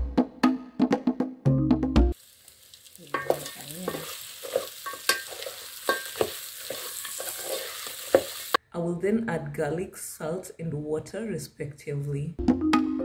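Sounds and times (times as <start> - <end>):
meat sizzling in oil: 2.2 - 8.6
spoon scraping metal pan: 3.0 - 8.6.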